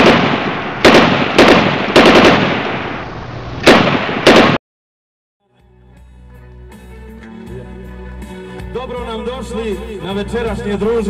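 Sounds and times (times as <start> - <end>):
gunfire bursts with echo: 0.0 - 3.0, 3.6 - 4.6.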